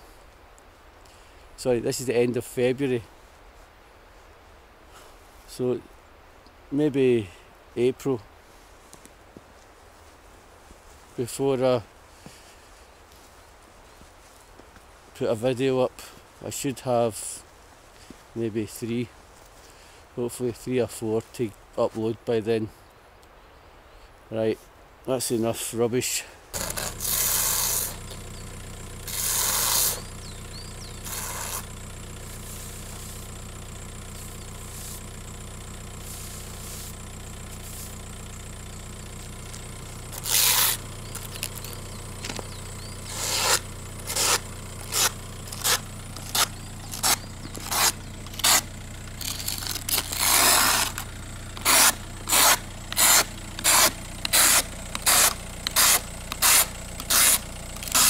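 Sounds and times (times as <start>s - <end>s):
brush sweeping snow off car: 26.6s - 58.0s
car engine idling: 26.6s - 58.0s.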